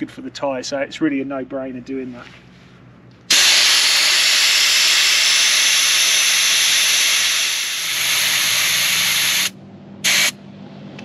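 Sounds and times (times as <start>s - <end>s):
air hissing out of tyre: 3.3s - 10.4s.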